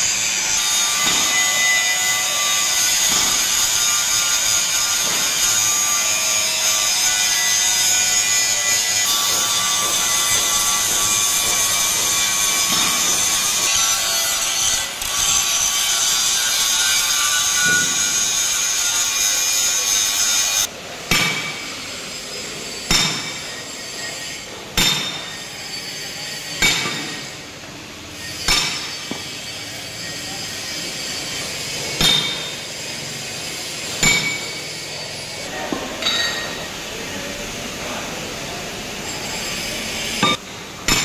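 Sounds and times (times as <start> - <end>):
angle grinder grinding steel: 0.0 - 20.7, 21.5 - 37.0, 38.8 - 40.4
hammer blows ringing on steel: 0.8 - 6.1, 7.5 - 15.4, 16.4 - 18.2, 21.0 - 22.1, 22.8 - 27.4, 28.3 - 32.8, 33.8 - 34.8, 40.2 - 41.0.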